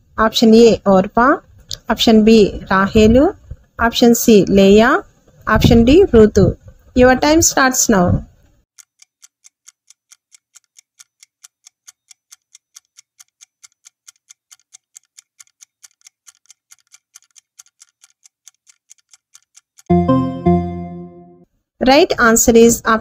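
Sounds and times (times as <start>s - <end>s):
clock ticking: 8.7s - 19.9s.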